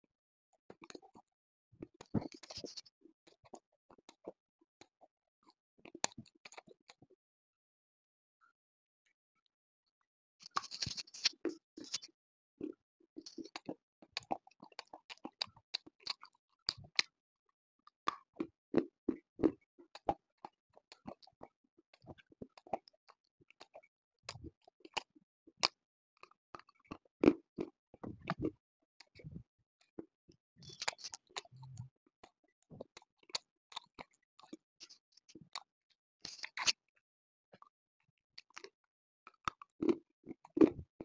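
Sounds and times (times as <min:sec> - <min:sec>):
chewing crunching slate: 0:36.4 - 0:36.8.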